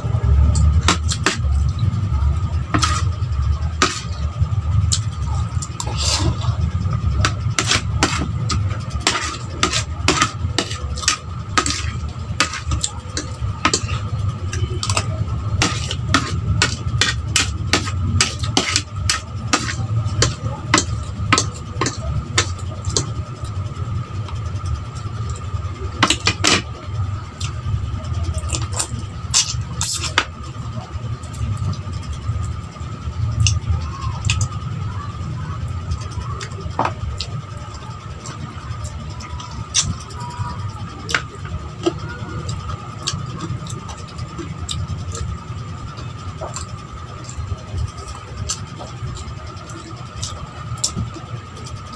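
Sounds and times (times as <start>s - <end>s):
steady low hum: 0.0s - 51.9s
chewing: 35.9s - 51.7s.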